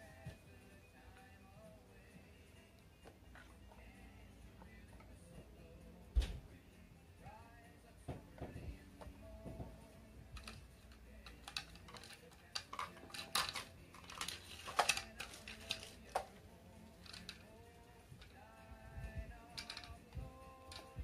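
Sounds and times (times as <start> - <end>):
wooden blocks clacking: 8.4 - 16.4, 17.0 - 17.5, 19.6 - 21.0.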